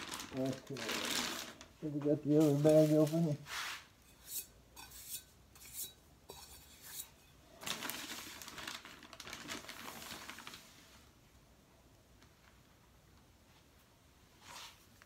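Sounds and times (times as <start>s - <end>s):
bag rustling and crinkling: 0.0s - 3.8s, 7.5s - 11.1s.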